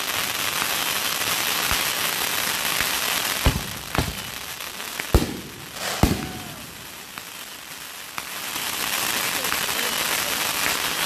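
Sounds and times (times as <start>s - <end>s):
fireworks hissing: 0.0s - 11.0s
firework launch thumps: 3.4s - 4.5s, 5.1s - 7.0s.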